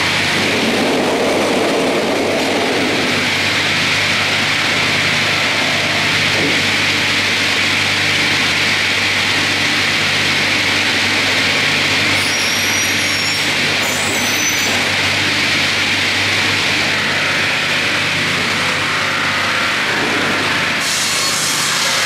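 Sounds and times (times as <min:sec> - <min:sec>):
sawmill running: 0:00.0 - 0:22.0
brief high squeaks: 0:12.2 - 0:14.8.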